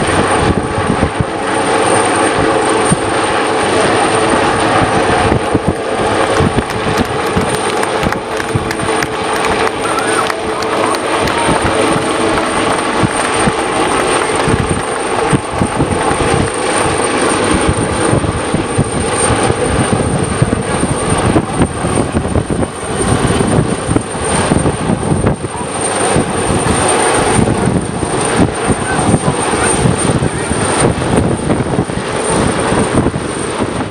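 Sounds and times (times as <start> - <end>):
helicopter rotor thudding: 0.0 - 33.9
high turbine whine: 0.0 - 33.9.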